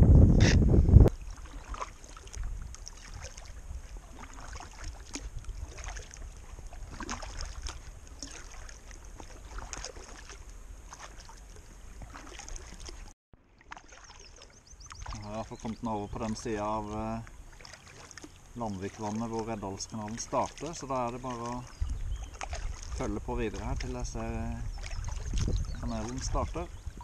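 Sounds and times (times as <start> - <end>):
wind on microphone: 0.0 - 8.3, 21.6 - 27.0
kayak paddle splashes: 1.1 - 27.0
water dripping from paddle: 1.1 - 27.0.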